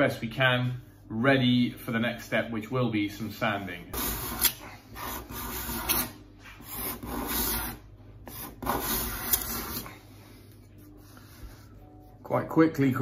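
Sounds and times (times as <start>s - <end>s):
card scraper rasping on wood: 3.9s - 9.9s.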